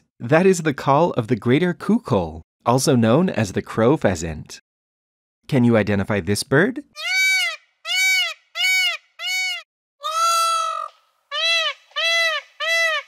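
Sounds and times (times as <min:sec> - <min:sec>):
peafowl calling: 0:07.0 - 0:13.0.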